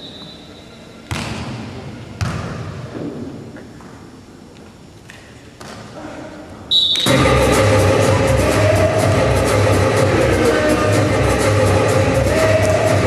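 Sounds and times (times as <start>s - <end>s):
volleyball hits echoing: 2.2s - 3.2s.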